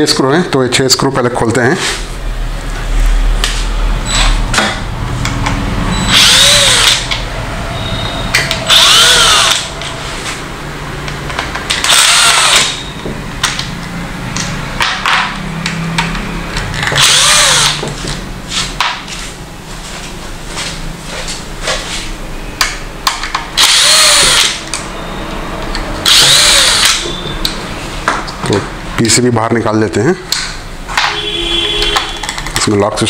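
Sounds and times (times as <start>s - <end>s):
drill motor whine: 5.9s - 9.8s, 11.8s - 13.1s, 16.9s - 17.9s, 23.6s - 24.7s, 26.0s - 27.3s.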